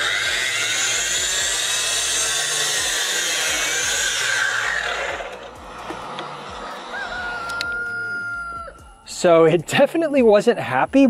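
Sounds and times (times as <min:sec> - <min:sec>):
miter saw cutting wood: 0:00.0 - 0:08.1.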